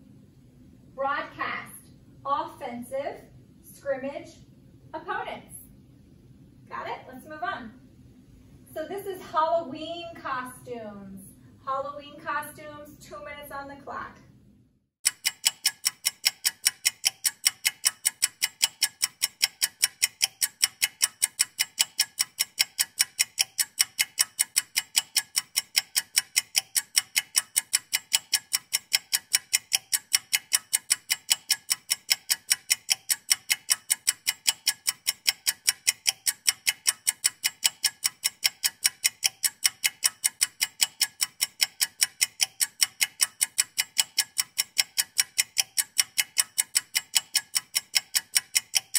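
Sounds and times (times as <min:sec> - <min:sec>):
ticking clock: 0:15.0 - 0:48.9.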